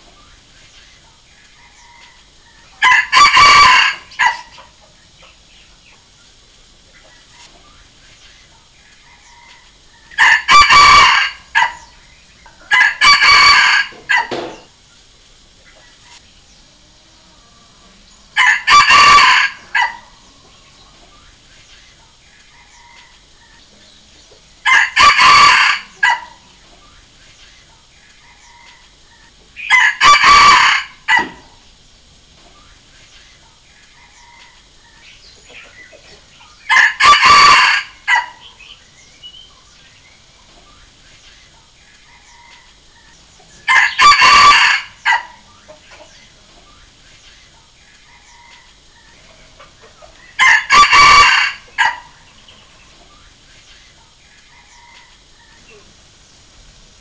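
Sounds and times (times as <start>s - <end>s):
rooster crowing: 1.6s - 4.6s, 9.0s - 12.0s, 12.6s - 14.7s, 16.9s - 20.6s, 22.5s - 23.5s, 24.6s - 26.6s, 28.2s - 31.6s, 34.0s - 35.1s, 36.6s - 38.7s, 43.6s - 45.4s, 48.0s - 49.2s, 50.4s - 52.4s, 54.5s - 55.7s.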